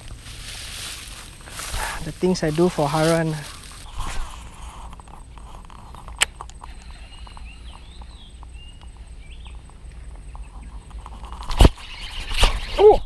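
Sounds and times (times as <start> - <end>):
low wind rumble: 0.0 - 13.0
bird chirps: 5.3 - 11.0.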